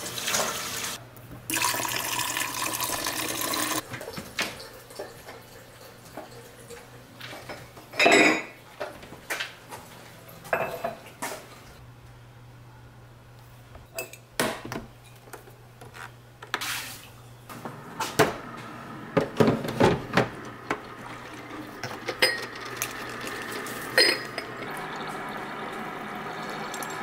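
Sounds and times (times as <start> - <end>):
coffee maker brewing hiss: 0.0 - 3.8, 17.5 - 27.0.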